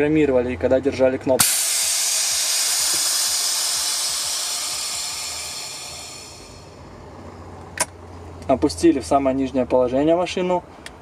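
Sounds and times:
air suspension hissing: 1.4 - 7.0.

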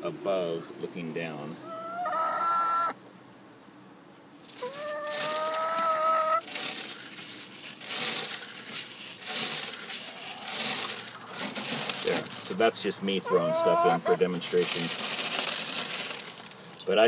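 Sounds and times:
hen calling: 1.6 - 3.0, 4.5 - 6.5, 12.9 - 14.6
chicken feed rattling into bucket: 4.4 - 16.9.

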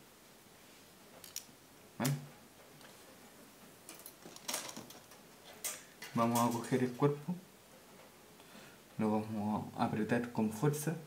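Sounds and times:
wire clicking and ticking: 3.9 - 7.1.

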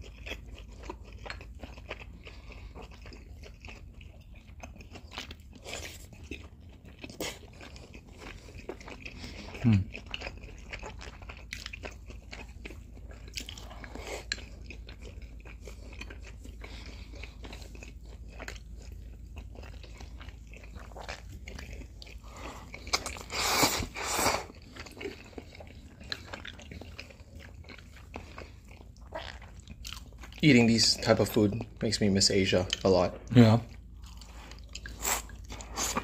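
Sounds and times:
chewing and crunching: 0.0 - 36.0
loud hissing noodle slurp: 23.3 - 24.5.

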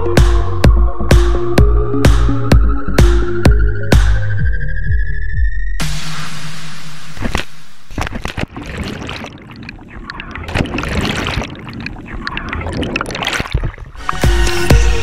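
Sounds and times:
person splashing into water: 7.9 - 14.2
underwater bubbling and gurgling: 7.9 - 14.6.

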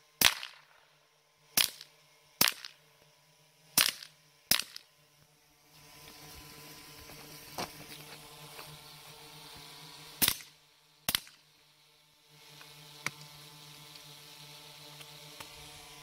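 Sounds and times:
faint steady hum: 0.0 - 16.0
handgun shots: 0.2 - 0.8, 1.6 - 2.7, 3.8 - 4.8.

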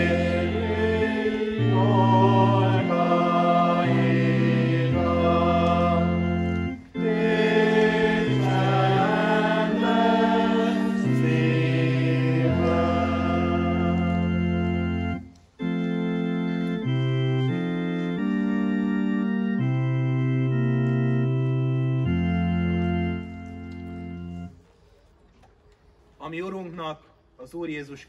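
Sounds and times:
congregation singing a hymn: 0.0 - 15.8
church organ chords: 0.0 - 24.6.

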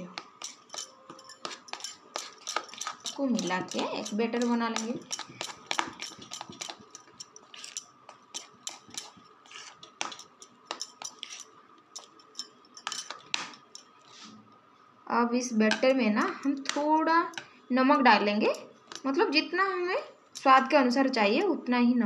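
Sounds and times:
fingers mixing batter in bowl: 0.0 - 14.2, 15.7 - 17.5, 18.1 - 19.3.

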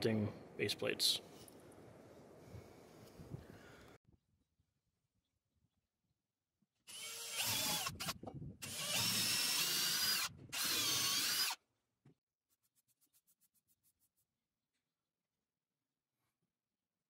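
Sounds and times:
cordless drill boring into wood: 6.9 - 11.6.

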